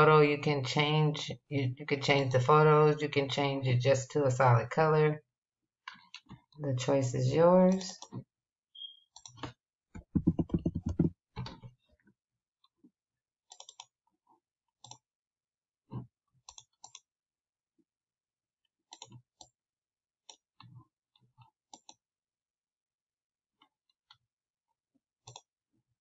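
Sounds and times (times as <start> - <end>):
computer mouse clicking: 13.5 - 13.9.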